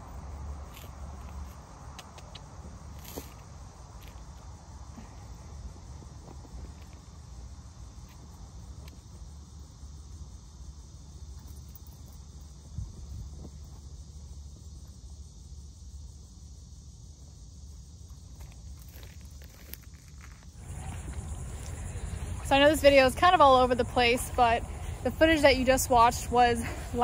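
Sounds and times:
insect chorus: 0.0s - 27.0s
faint rustles and clicks: 18.1s - 23.0s
low rumble: 20.0s - 27.0s.

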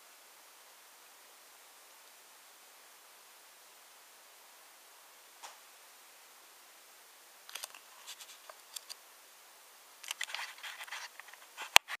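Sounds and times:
faint hiss: 0.0s - 12.0s
clicks and scratches of handling: 7.5s - 9.0s, 10.0s - 12.0s.

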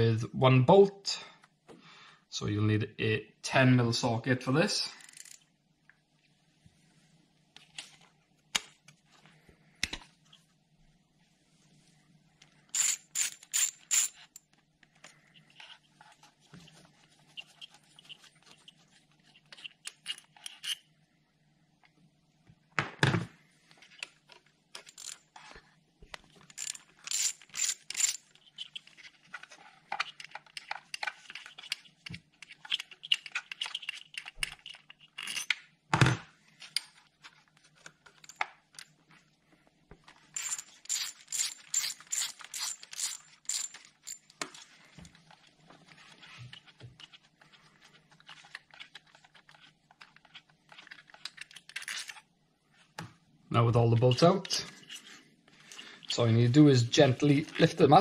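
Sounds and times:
ratchet wrench clicking: 5.0s - 5.4s, 12.8s - 14.2s, 26.6s - 28.2s, 40.4s - 44.2s.

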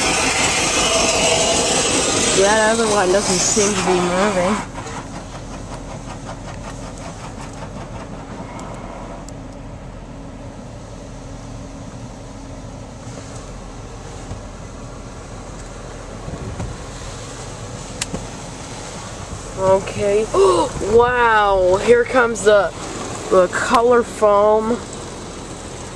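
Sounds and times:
water spray beating on car: 0.0s - 8.4s, 16.4s - 25.9s
machinery hum: 0.0s - 25.9s.

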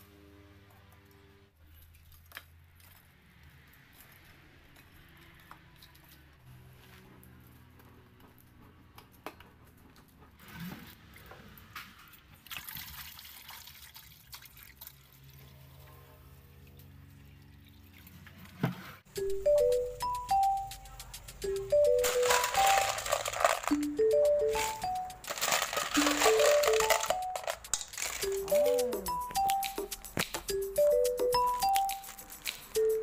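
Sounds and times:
faint background music: 19.1s - 33.0s
scattered clicks: 19.2s - 33.0s.

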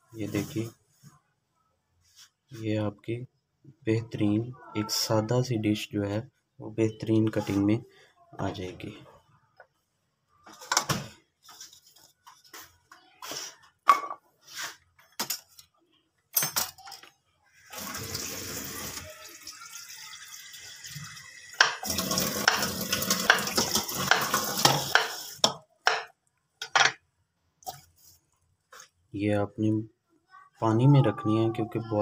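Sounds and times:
tap running: 21.6s - 25.3s.

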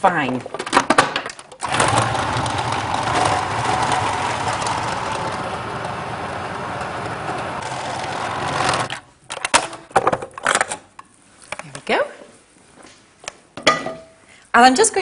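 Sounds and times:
food processor motor running: 1.6s - 9.0s.

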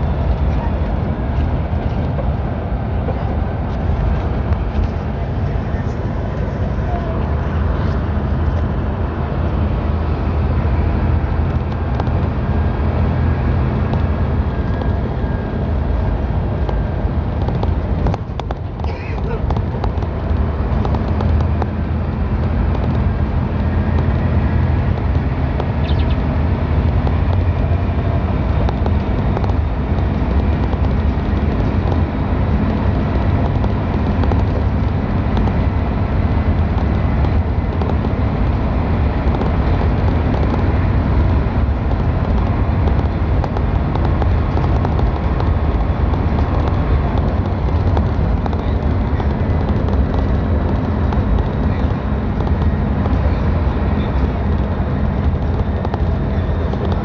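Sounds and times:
tyre noise on wet road: 0.0s - 57.0s
vehicle engine rumble: 0.0s - 57.0s.

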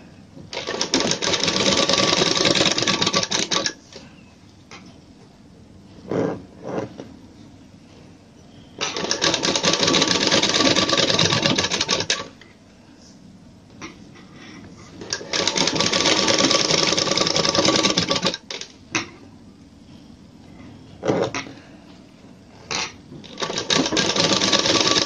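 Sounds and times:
sewing machine stitching: 0.5s - 3.8s, 8.8s - 12.3s, 15.0s - 18.6s, 22.8s - 25.0s.

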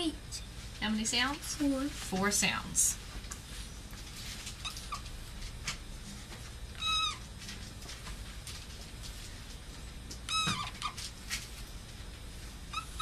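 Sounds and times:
marker squeaking on whiteboard: 10.3s - 11.0s.

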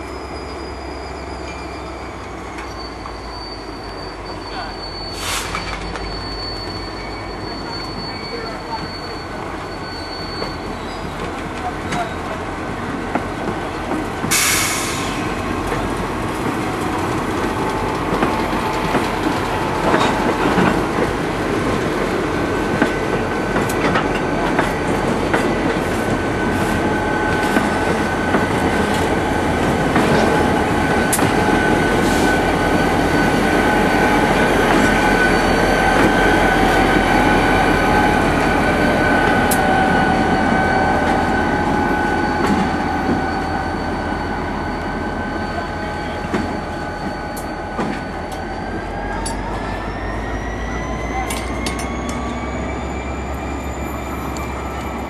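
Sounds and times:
steady high squeal: 0.0s - 12.4s, 24.1s - 55.0s
diesel locomotive rolling past: 0.0s - 55.0s.

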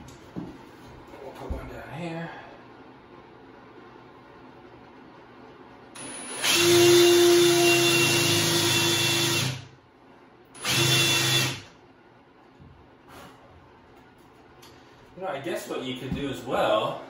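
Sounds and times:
cordless drill boring into wood: 6.0s - 9.6s, 10.6s - 11.7s.

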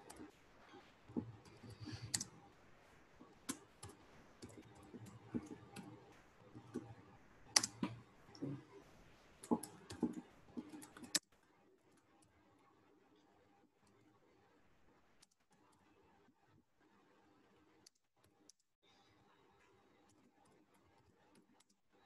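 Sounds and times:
computer keyboard typing: 3.5s - 8.6s, 9.4s - 11.2s.

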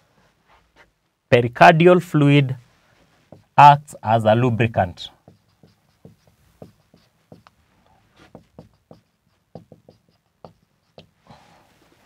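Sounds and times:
marker writing on whiteboard: 3.0s - 11.4s.

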